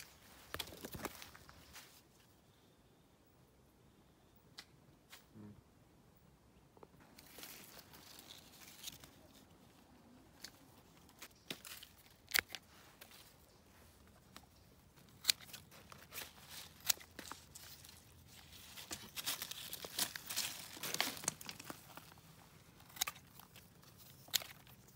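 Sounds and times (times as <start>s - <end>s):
rustling and crackling stems: 0.0s - 2.5s, 6.8s - 24.9s
pruning shears clicking: 14.9s - 17.8s.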